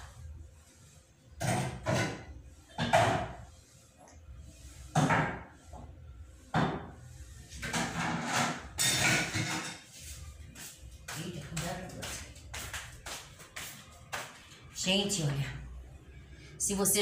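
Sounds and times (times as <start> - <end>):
noisy clatter of objects: 1.4 - 3.4, 7.6 - 9.9.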